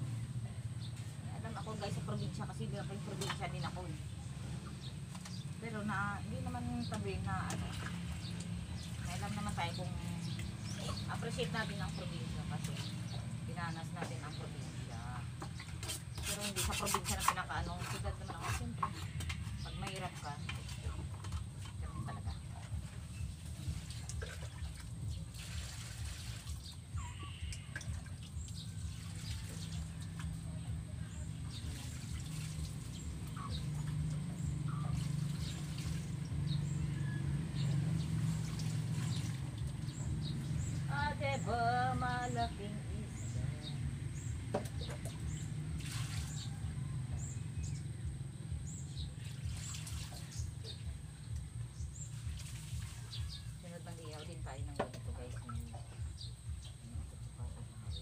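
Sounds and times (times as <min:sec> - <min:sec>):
small birds chirping: 0:00.0 - 0:58.0
water splashing and dripping: 0:04.8 - 0:57.9
steady low rumble: 0:53.2 - 0:58.0.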